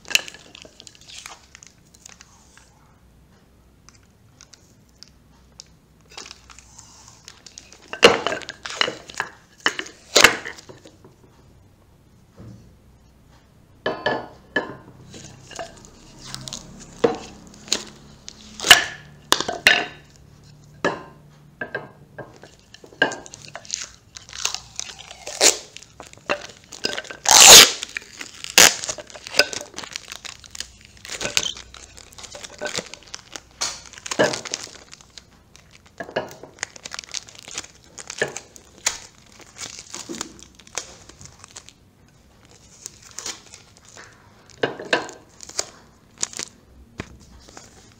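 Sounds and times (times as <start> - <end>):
plastic wrapping crinkling and tearing: 0.0 - 2.7, 3.9 - 11.0, 15.0 - 20.6, 22.3 - 47.9.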